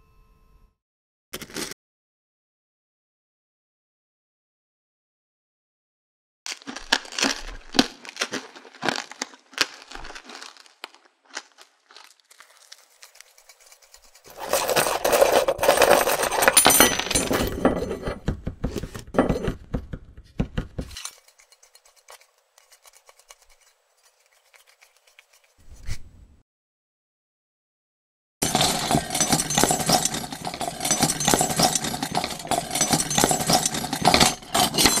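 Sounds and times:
metal pieces clattering: 13.4 - 18.2, 28.4 - 35.0.

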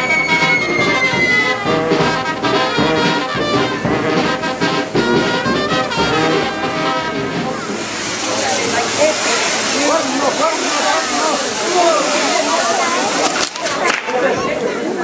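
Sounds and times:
high descending whistle: 0.0 - 1.7
brass band music: 0.0 - 13.7.

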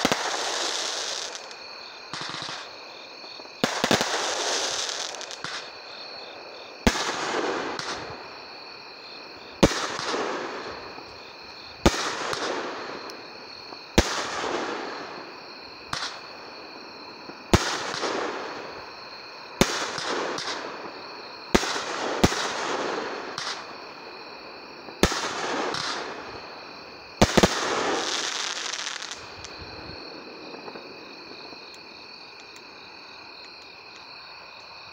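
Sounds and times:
firework bangs with crackling: 0.0 - 5.8, 6.8 - 8.2, 9.6 - 11.0, 11.8 - 15.2, 15.8 - 16.3, 17.3 - 18.8, 19.6 - 23.8, 24.8 - 26.5, 27.2 - 32.4
insect trill: 0.0 - 34.9.

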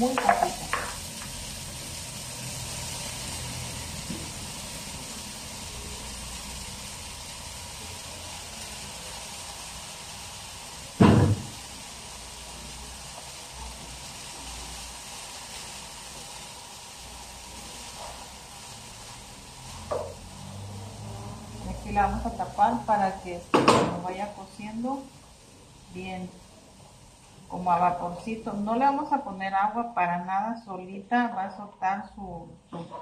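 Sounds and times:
vegetables sizzling in oil: 0.0 - 31.7
loud clunk: 11.0 - 11.5.

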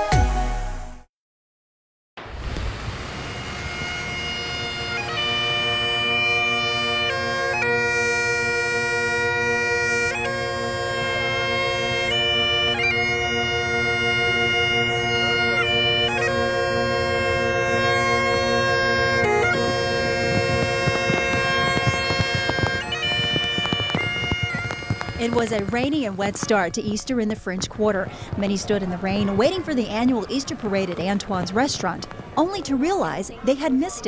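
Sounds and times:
bagpipes playing a tune: 3.3 - 26.2.

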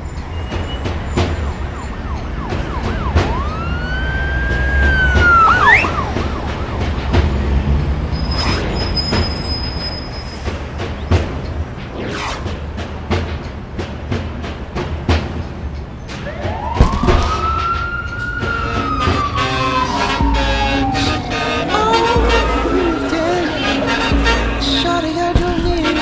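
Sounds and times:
sharp hits: 0.4 - 26.0
siren-like wail: 0.8 - 9.7, 16.2 - 25.0
steady low rumble: 18.7 - 25.8.

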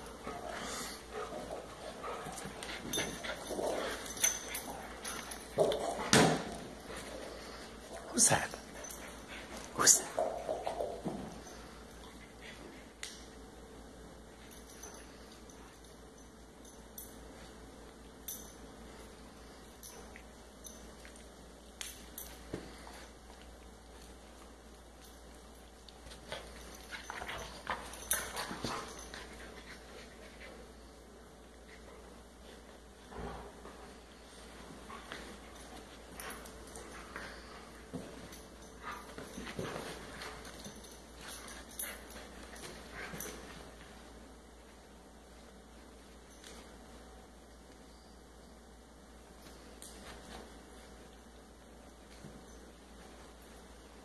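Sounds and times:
dogs scuffling: 32.5 - 44.2.

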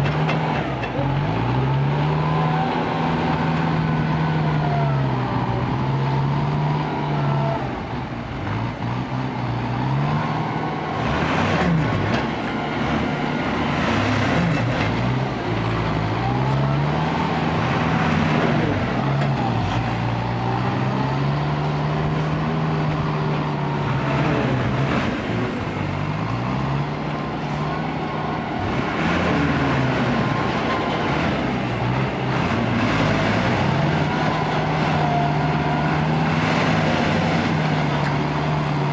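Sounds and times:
diesel truck engine revving: 0.0 - 38.9.

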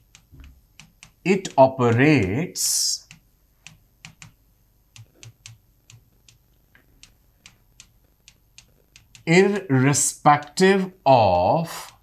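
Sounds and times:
stylus tapping on touchscreen: 3.0 - 6.4.

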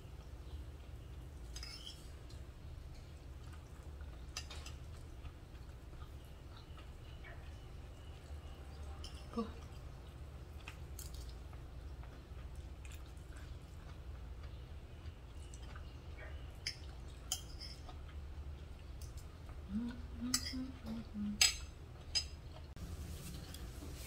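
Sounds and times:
low room hum: 0.0 - 24.0
closed-mouth hum: 18.2 - 24.0
spoon clinking on ceramic bowl: 20.3 - 20.6.

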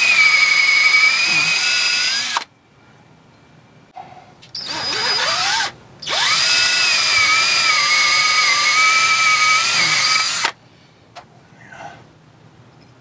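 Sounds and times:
cordless drill whining: 0.0 - 2.5, 4.6 - 10.6.

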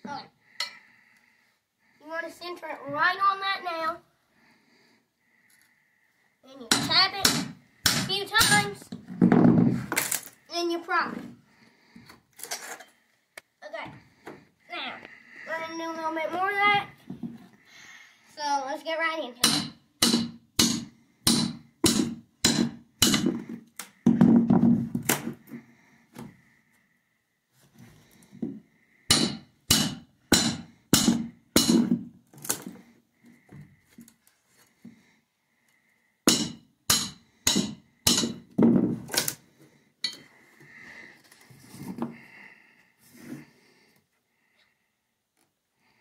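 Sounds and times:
hammer tapping metal bar: 19.4 - 23.3, 29.1 - 31.9, 36.3 - 38.4.

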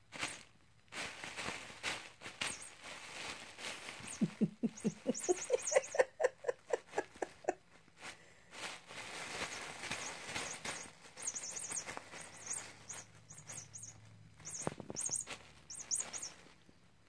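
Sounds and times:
bubble wrap crinkling: 0.0 - 16.7
person giggling: 4.1 - 7.6.

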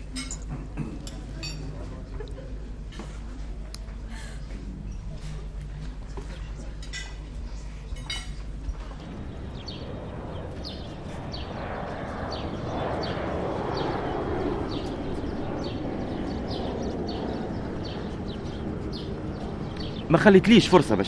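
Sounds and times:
birds chirping: 8.4 - 21.0.

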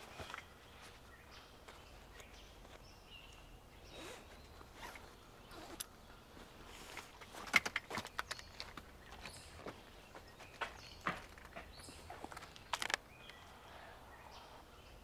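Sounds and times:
zipper pulled: 3.9 - 5.9.

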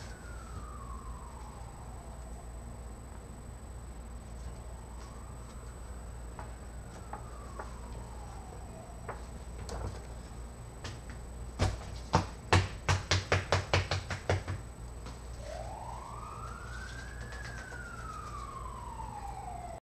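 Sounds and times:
siren wail: 0.0 - 10.4, 15.1 - 19.8.

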